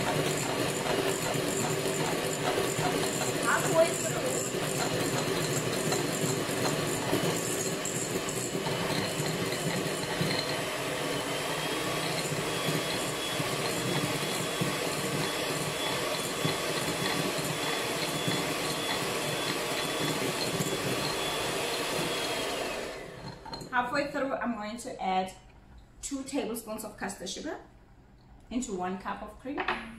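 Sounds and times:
electric hand mixer whipping cream: 0.0 - 23.5.

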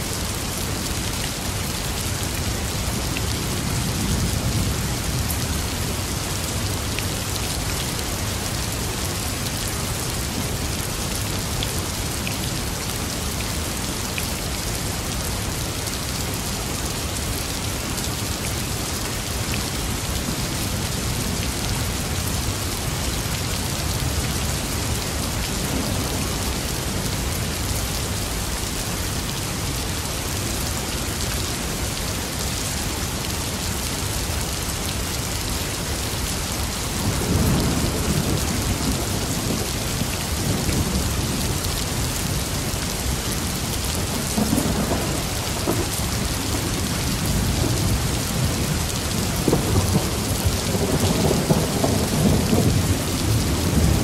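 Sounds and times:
steady rain falling: 0.0 - 54.0
thunder rumbling: 46.7 - 54.0.

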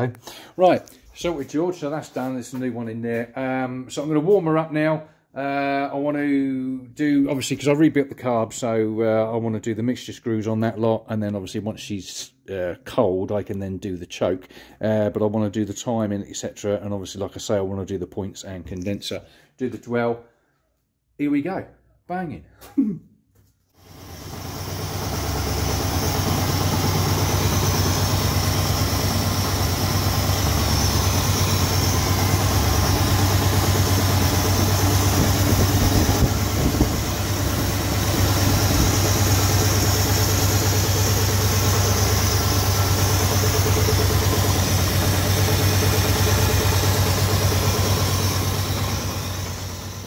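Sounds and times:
engine idling with soft knock: 24.0 - 50.0.

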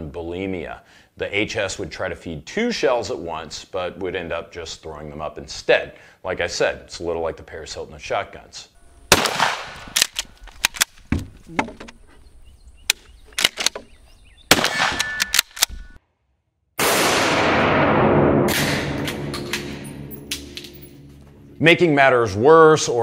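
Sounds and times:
shotgun shot: 9.1 - 10.0, 14.5 - 15.6, 16.8 - 21.0
long loud even noise: 17.1 - 23.0.

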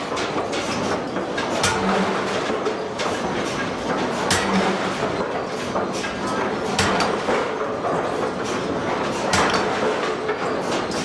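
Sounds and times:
air hammer mechanical rumble: 0.0 - 11.0.

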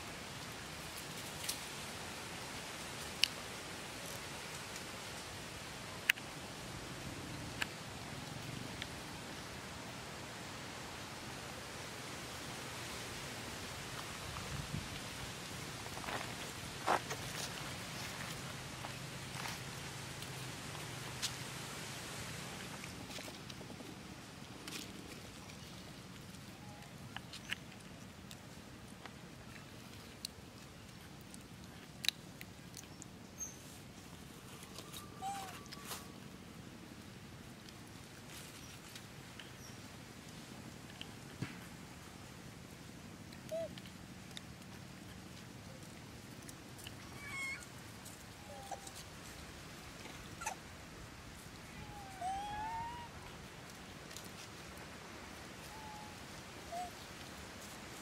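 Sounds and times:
faint steady hiss: 0.0 - 58.0
squeaky animal calls: 47.0 - 47.6.

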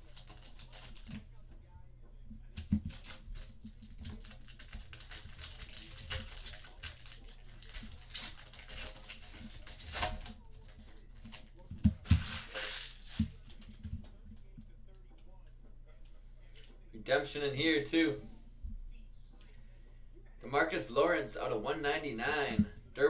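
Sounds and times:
card pack wrappers tearing: 0.0 - 1.2, 2.8 - 13.5.

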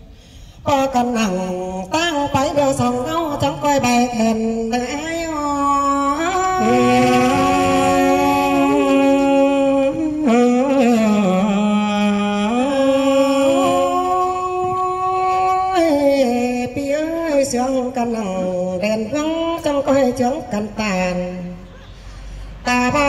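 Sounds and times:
folk singing with sliding notes: 5.6 - 15.5.

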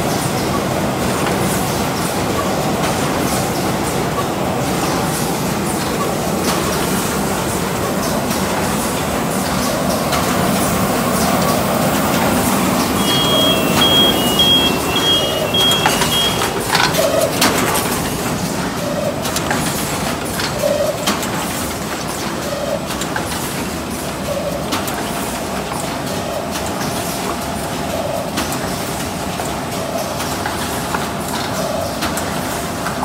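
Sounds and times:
machine line running: 4.6 - 21.7
high two-tone beeping: 12.9 - 16.7.

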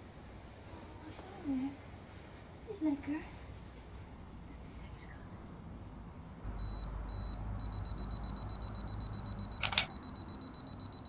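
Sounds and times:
camera self-timer beeping: 6.6 - 11.0
camera shutter click: 9.6 - 10.0.

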